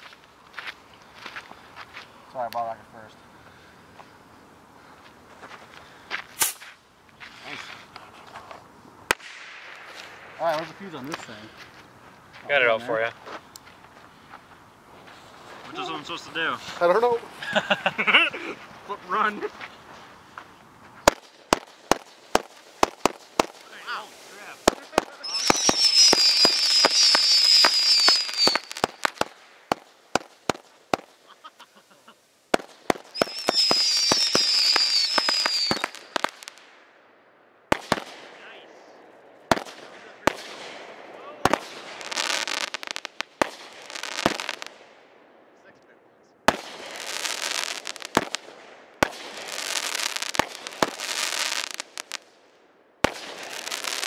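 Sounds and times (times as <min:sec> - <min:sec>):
firework pops and crackles: 0:05.4 - 0:12.5, 0:19.5 - 0:36.8, 0:37.7 - 0:45.0, 0:46.4 - 0:54.0
firework whistle: 0:23.8 - 0:29.3, 0:33.1 - 0:36.2.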